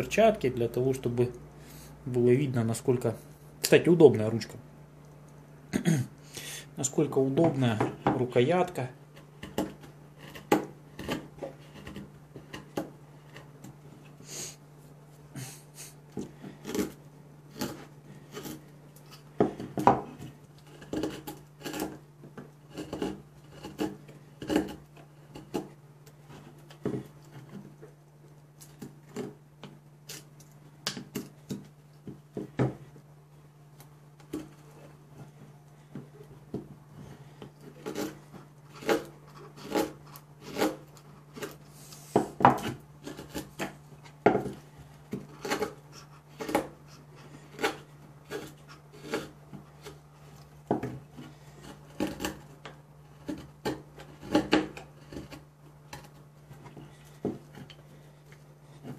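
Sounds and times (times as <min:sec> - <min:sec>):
knife whittling wood: 0:15.4 - 0:28.0, 0:34.2 - 0:58.9.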